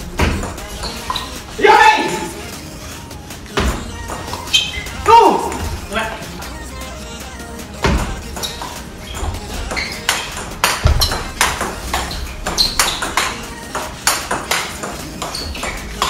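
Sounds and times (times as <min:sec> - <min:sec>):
table tennis ball clicks: 0:09.7 - 0:16.0.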